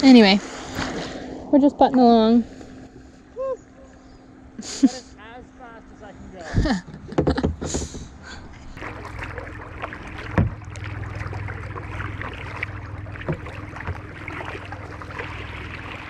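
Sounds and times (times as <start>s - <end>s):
paddle knocking against hull: 6.9s - 8.1s, 8.8s - 16.0s
paddle strokes swishing and dripping: 8.8s - 16.0s.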